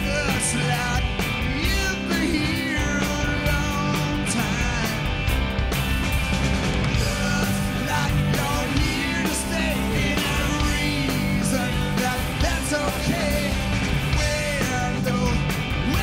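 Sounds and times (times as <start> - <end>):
man singing loudly: 0.0 - 5.0, 7.0 - 16.0
live rock band playing: 0.0 - 16.0.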